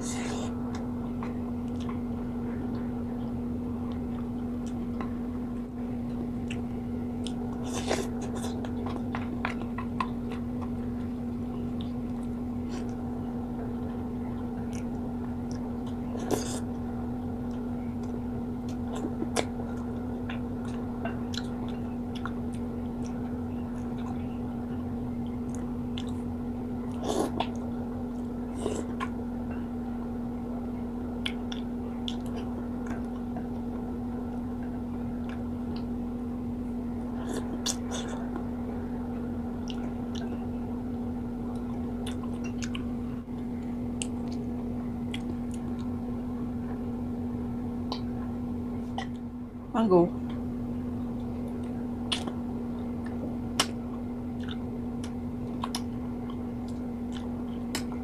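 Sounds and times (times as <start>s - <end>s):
low hum: 0.0s - 58.0s
chewing and mouth sounds: 6.4s - 13.0s, 14.6s - 16.8s, 17.4s - 24.3s, 25.2s - 29.2s, 31.2s - 35.9s, 37.1s - 38.5s, 39.6s - 40.5s, 41.5s - 46.0s, 51.2s - 58.0s.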